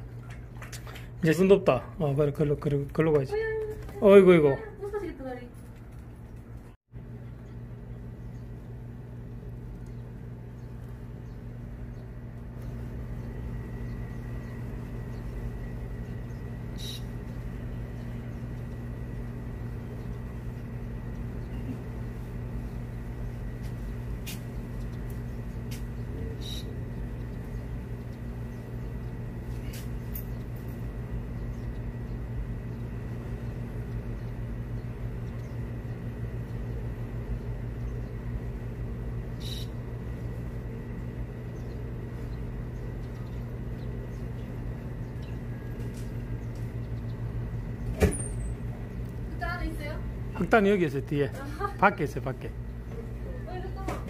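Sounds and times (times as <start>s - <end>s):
low hum with high whine: 0.0s - 54.0s.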